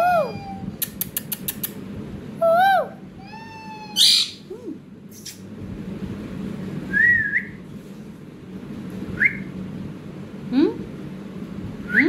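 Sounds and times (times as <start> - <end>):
parakeet calling: 3.3 - 4.5.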